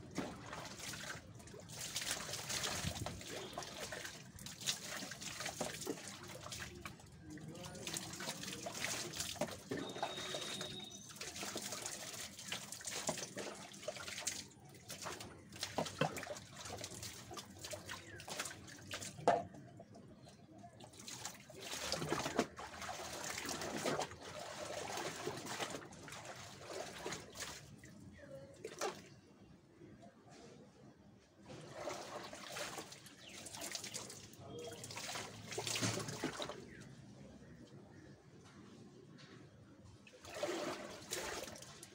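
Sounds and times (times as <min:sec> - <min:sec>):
water pouring into a tub: 0:00.0 - 0:20.0, 0:20.8 - 0:27.8, 0:31.5 - 0:36.8, 0:40.1 - 0:41.9
water streaming from hair: 0:00.6 - 0:19.2.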